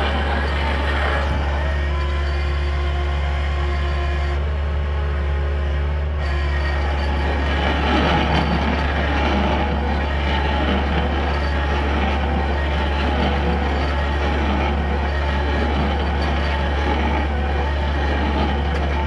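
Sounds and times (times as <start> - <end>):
diesel engine running: 0.0 - 19.0
stump drill grinding wood: 6.2 - 19.0.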